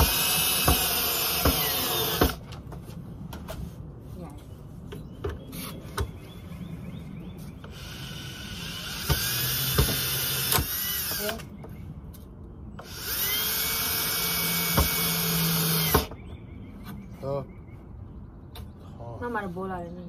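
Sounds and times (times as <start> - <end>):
electric drill motor whine: 0.0 - 2.4, 7.7 - 11.4, 12.8 - 16.1.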